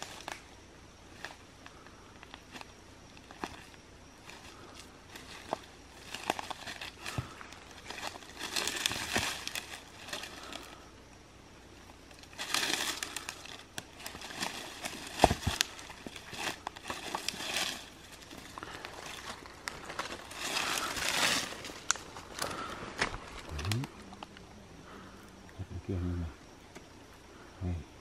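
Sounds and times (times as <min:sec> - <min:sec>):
dry leaves rustling and crackling: 0:02.3 - 0:10.9, 0:11.7 - 0:24.3.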